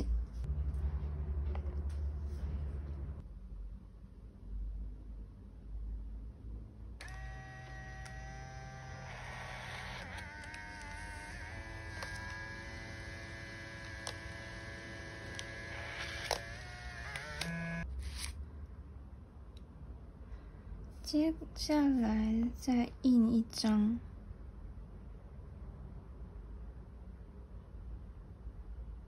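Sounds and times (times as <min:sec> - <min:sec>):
printer motor whirring: 0:07.0 - 0:17.8
small clicks: 0:15.2 - 0:18.3.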